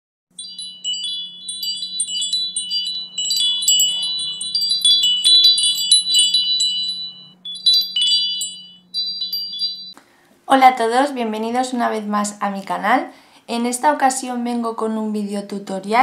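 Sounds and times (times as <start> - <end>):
tinkling bell-like chimes: 0.3 - 10.0
faint low hum: 0.4 - 13.7.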